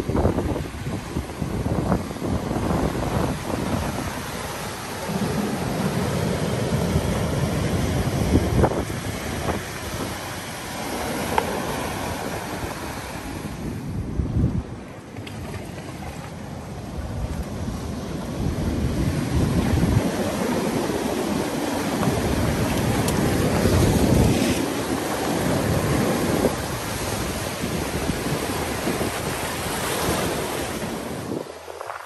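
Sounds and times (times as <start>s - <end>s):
wind buffeting microphone: 0.0s - 32.0s
surf breaking on rocks: 15.2s - 32.0s.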